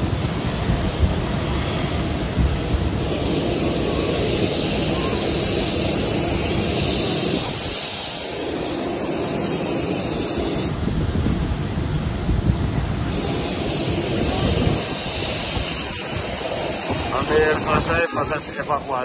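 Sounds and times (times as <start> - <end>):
jet airliner hum: 0.0 - 19.0
wind buffeting microphone: 0.0 - 19.0.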